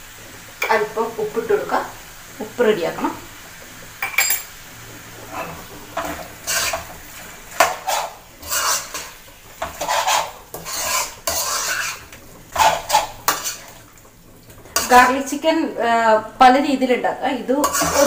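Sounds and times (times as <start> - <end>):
metal spoon scraping a pan: 5.3 - 13.8, 14.7 - 15.3, 17.5 - 18.0.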